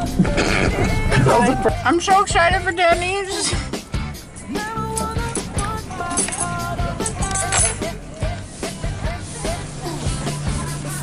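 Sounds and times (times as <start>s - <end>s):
pop music with steady beat: 0.0s - 11.0s.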